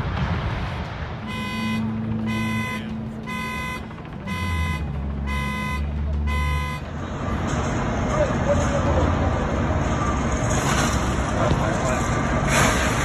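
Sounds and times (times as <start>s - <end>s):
electronic alarm beeping: 1.2s - 6.9s.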